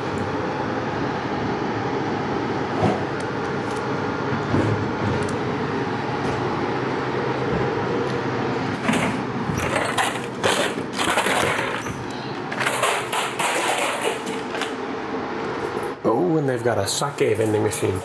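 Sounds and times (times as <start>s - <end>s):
vending machines humming: 0.0s - 18.0s.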